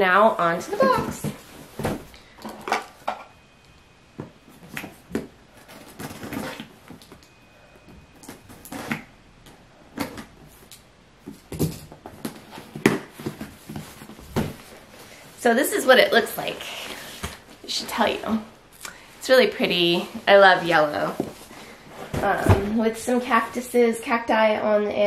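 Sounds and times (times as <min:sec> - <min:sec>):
cardboard boxes rustling and scraping: 0:00.5 - 0:02.2, 0:04.5 - 0:07.0, 0:12.0 - 0:18.3, 0:19.5 - 0:23.7.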